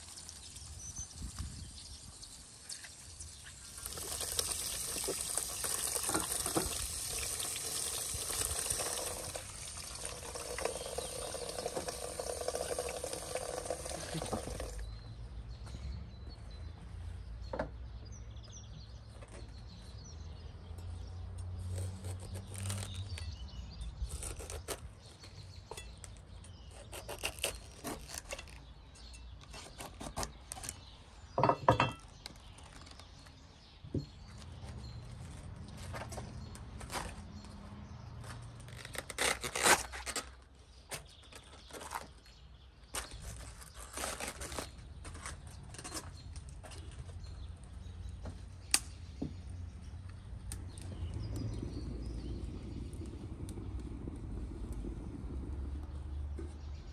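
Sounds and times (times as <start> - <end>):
water flowing: 0.0 - 14.8
dishes and utensils clinking: 31.4 - 32.0.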